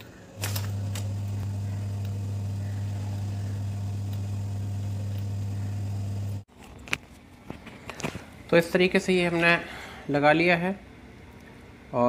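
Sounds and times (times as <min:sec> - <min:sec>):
low electrical hum: 0:00.1 - 0:06.4.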